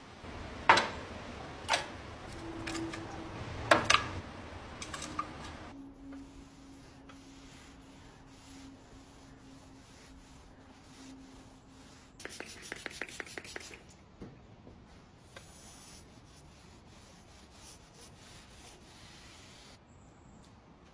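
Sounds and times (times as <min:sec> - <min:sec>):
spray bottle pumps: 0:12.2 - 0:13.9.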